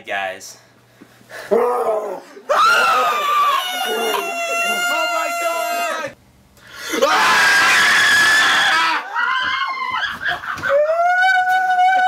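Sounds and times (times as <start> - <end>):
man wailing: 1.5 - 6.2, 10.7 - 12.0
young men screaming: 1.5 - 6.2, 6.8 - 12.0.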